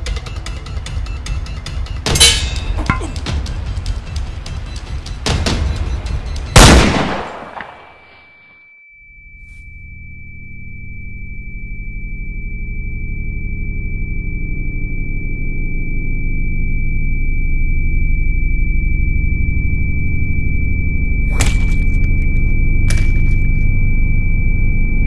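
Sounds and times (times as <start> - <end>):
high-pitched ringing tone: 8.2 - 25.0
low drone: 9.7 - 25.0.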